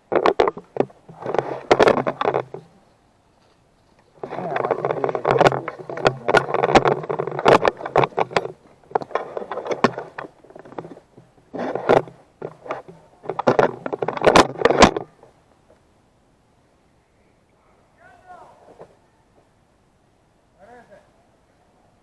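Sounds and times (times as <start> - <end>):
camera rattling in loose mount: 0.0 - 2.8, 3.4 - 15.3.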